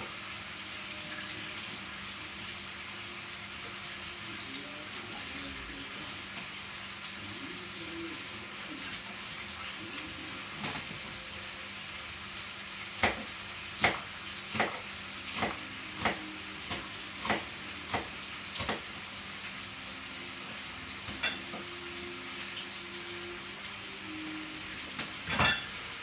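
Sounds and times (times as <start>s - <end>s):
knife chopping on cutting board: 13.0s - 14.8s, 15.4s - 18.9s.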